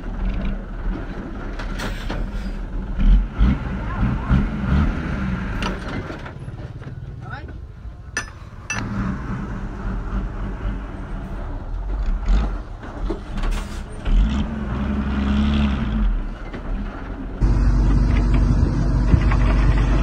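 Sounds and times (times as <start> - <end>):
heavy diesel engine running: 8.8 - 20.0.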